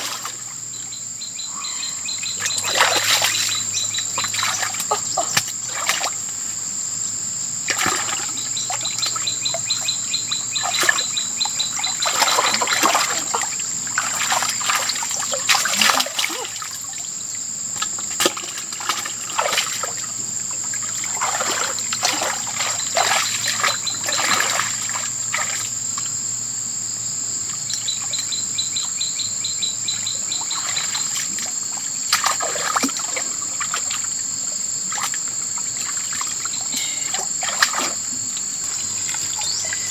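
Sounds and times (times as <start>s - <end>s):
splashing in shallow water: 0.0s - 0.6s, 1.8s - 6.6s, 7.6s - 9.9s, 10.5s - 17.0s, 17.7s - 26.1s, 30.1s - 39.9s
high-pitched insect drone: 0.0s - 17.9s, 19.0s - 39.9s
rapid chirping trills: 0.7s - 5.2s, 8.3s - 14.7s, 22.2s - 25.0s, 38.3s - 39.9s.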